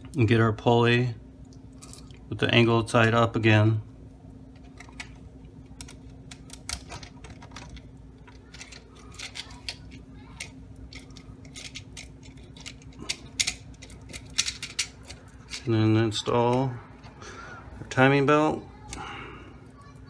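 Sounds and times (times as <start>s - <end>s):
plastic parts clicking: 5.8s - 15.7s.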